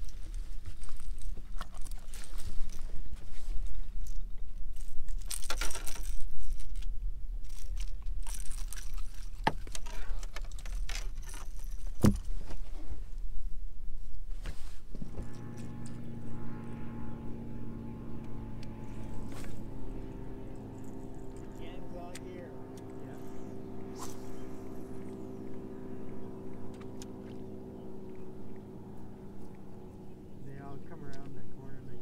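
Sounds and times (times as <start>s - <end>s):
metal rattling and jangling: 7.4s - 12.0s
low motor hum: 14.8s - 32.0s.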